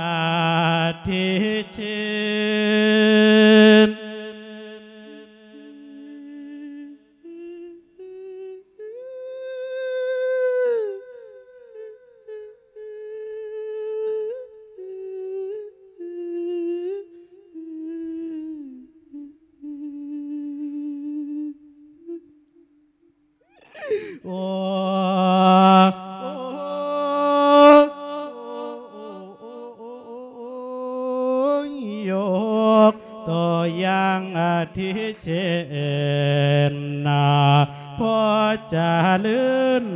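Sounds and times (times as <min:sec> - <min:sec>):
person chanting through a microphone: 0:00.0 - 0:07.0, 0:24.1 - 0:39.9.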